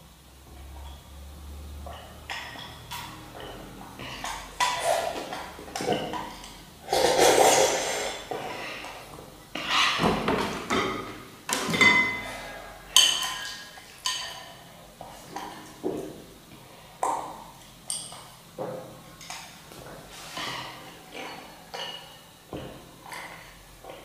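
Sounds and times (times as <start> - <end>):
spoon clinking on ceramic bowls: 12.9 - 14.6, 21.3 - 22.7.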